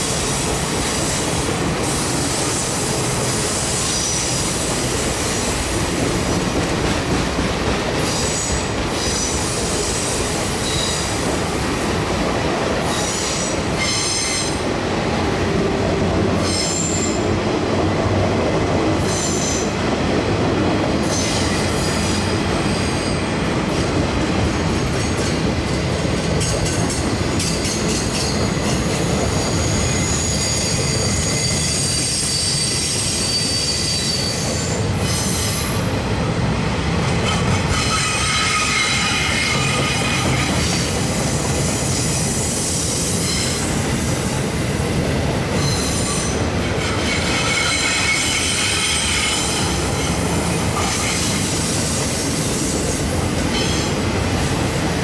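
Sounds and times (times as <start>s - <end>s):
train wheels rumbling on rail: 0.0s - 55.0s
high-pitched wheel squeal: 29.7s - 35.5s, 37.7s - 40.8s, 45.6s - 50.2s.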